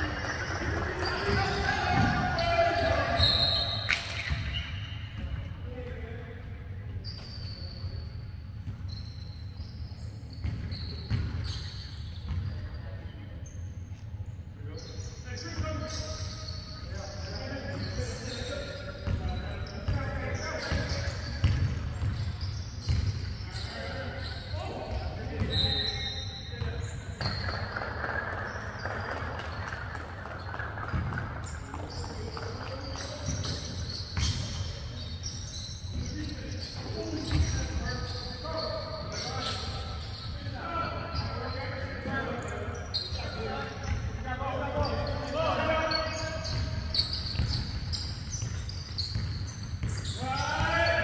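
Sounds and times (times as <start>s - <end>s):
sneakers squeaking: 0.0s - 51.0s
basketball bouncing: 0.2s - 2.9s, 10.4s - 11.4s, 20.7s - 23.3s, 27.2s - 34.6s, 46.4s - 50.8s.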